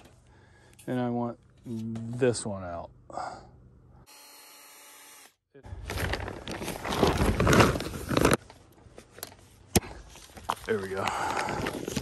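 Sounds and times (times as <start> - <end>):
cloth rustling against microphone: 5.8 - 10.8.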